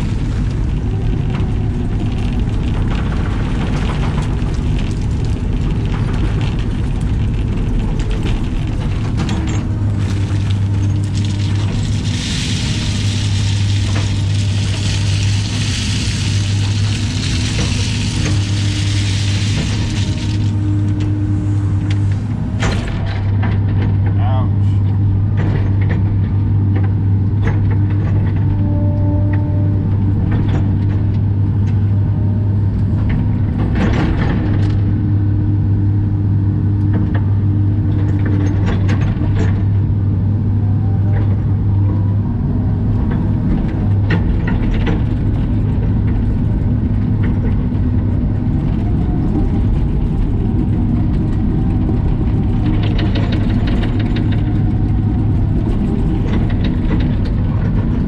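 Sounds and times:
steel bucket clanking and scraping: 0:00.0 - 0:23.0
excavator diesel engine running: 0:00.0 - 0:58.0
hydraulic whine: 0:08.3 - 0:24.0.

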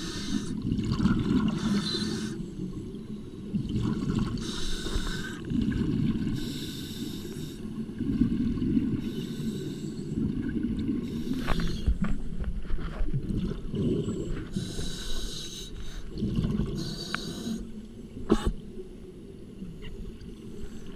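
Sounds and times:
regulator hissing inhales: 0:00.0 - 0:00.5, 0:04.4 - 0:05.4, 0:06.4 - 0:07.7, 0:14.5 - 0:16.1, 0:16.8 - 0:17.7
exhaled air bubbling: 0:00.0 - 0:12.4, 0:13.0 - 0:18.8.

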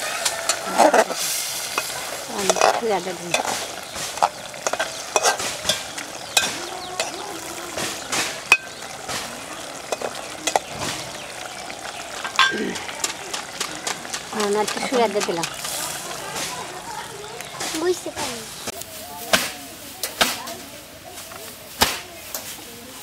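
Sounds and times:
food sizzling: 0:00.0 - 0:23.0
metal spoon clinking on pot: 0:01.7 - 0:07.3, 0:08.4 - 0:08.8, 0:12.2 - 0:12.6.

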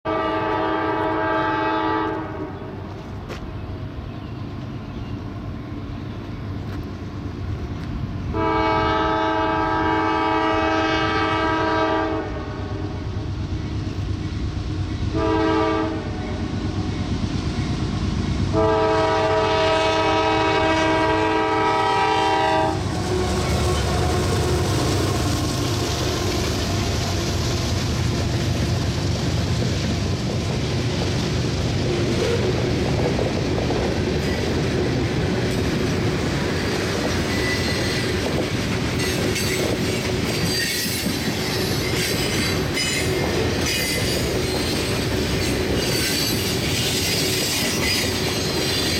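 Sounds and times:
train air horn blasts: 0:00.0 - 0:02.8, 0:08.3 - 0:13.1, 0:15.1 - 0:16.4, 0:18.5 - 0:27.0
freight train rumble: 0:00.0 - 0:48.9
train wheel clatter: 0:20.8 - 0:48.9.

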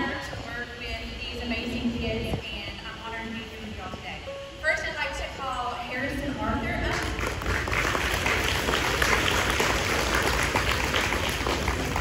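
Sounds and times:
audience clapping: 0:06.9 - 0:12.0.

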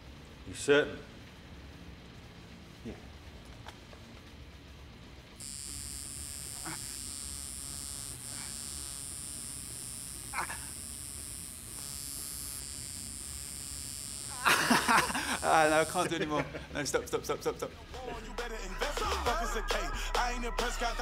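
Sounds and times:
tattoo machine buzzing: 0:05.4 - 0:16.4
person making pained sounds: 0:10.3 - 0:10.7.

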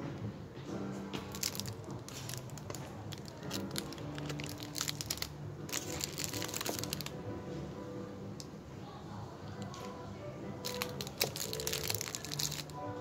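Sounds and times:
background music with held notes: 0:00.0 - 0:13.0
plastic wrapping crinkling: 0:01.2 - 0:07.2, 0:10.6 - 0:12.8.

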